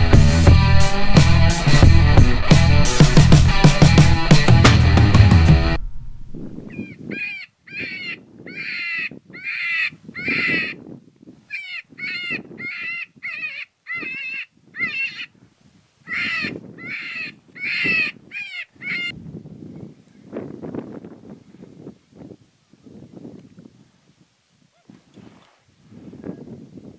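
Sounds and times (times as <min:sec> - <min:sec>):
raspy distress cry from predator call: 0:06.7 - 0:10.8, 0:11.5 - 0:15.3, 0:16.1 - 0:19.1.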